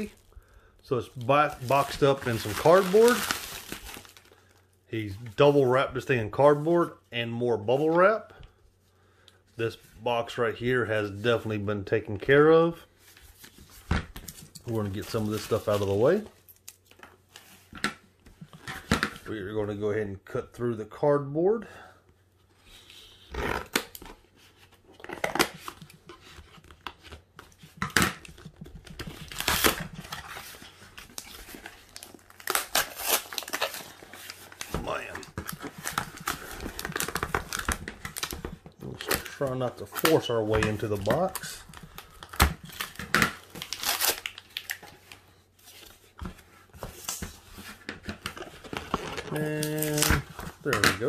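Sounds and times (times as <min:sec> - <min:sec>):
paper packaging crinkling: 0:01.1 - 0:04.4, 0:25.0 - 0:45.9.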